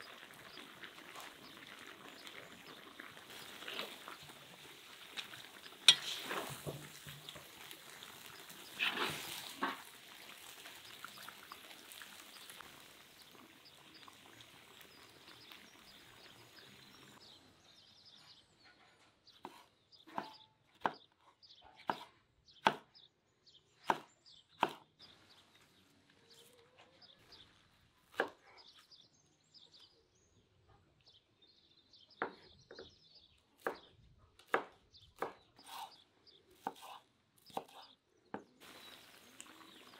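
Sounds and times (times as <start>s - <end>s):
stew sizzling: 0.0s - 17.4s, 38.6s - 39.9s.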